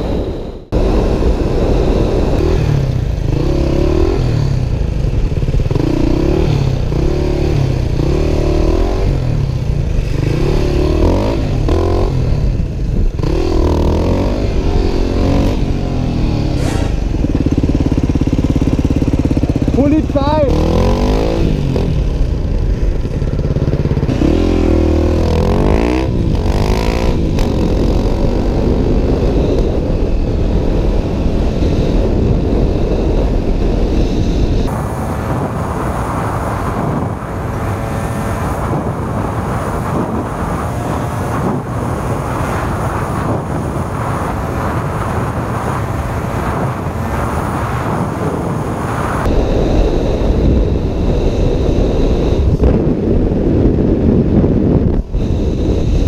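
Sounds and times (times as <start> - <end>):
wind on microphone: 0.0 - 56.0
dirt bike engine revving: 0.7 - 43.4.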